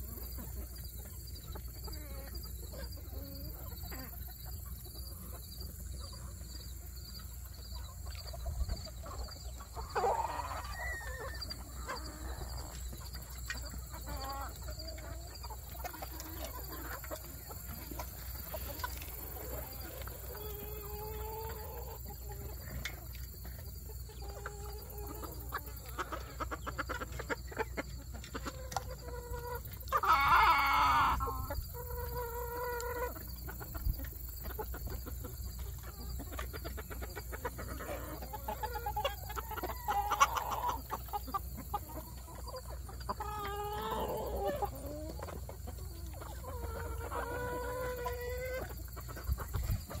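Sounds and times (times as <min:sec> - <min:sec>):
chickens clucking: 0:00.0 - 0:50.0
drawn-out hen calls: 0:00.0 - 0:50.0
harsh chicken call: 0:09.9 - 0:12.5, 0:29.1 - 0:33.2, 0:36.8 - 0:41.7, 0:43.1 - 0:45.4.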